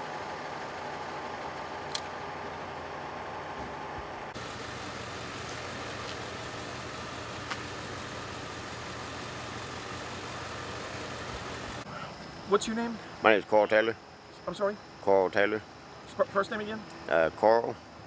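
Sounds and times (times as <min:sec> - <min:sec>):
vehicle engine idling: 0:00.0 - 0:13.2.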